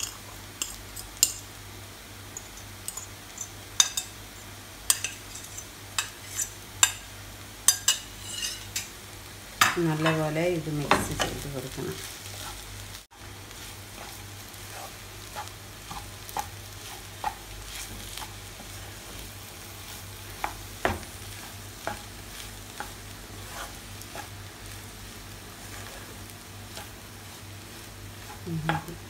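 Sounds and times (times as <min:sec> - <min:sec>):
food sizzling: 0:00.0 - 0:29.0
spatula scraping frying pan: 0:02.4 - 0:07.0, 0:07.7 - 0:08.9, 0:11.2 - 0:12.7, 0:13.6 - 0:24.4, 0:25.5 - 0:28.9.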